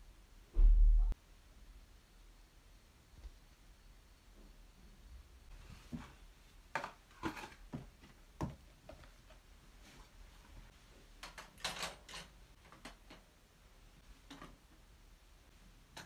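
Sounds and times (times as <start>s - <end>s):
plastic bottles knocking and clattering: 6.7s - 9.0s.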